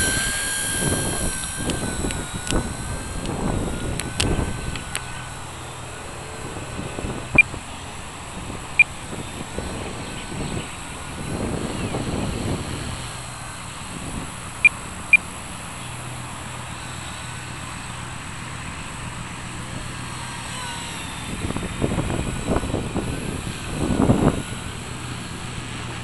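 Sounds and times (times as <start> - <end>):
wind on microphone: 0.0 - 14.7, 20.8 - 26.0
rc helicopter motor whine: 0.0 - 26.0.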